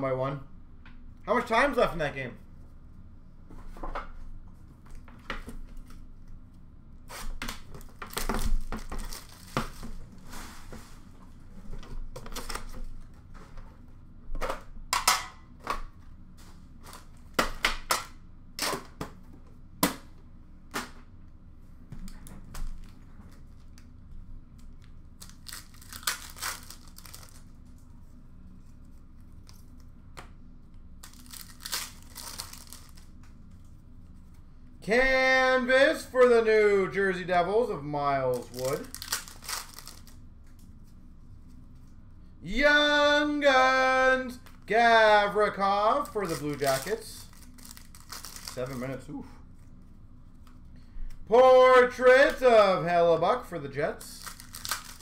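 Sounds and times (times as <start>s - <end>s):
foil wrappers ripping and rustling: 7.9s - 10.0s, 25.2s - 27.6s, 31.0s - 33.2s, 38.4s - 40.2s, 46.0s - 49.0s, 54.1s - 55.0s
cards being handled: 24.5s - 27.8s, 31.0s - 34.4s, 38.3s - 41.9s, 46.0s - 49.0s, 54.2s - 55.0s.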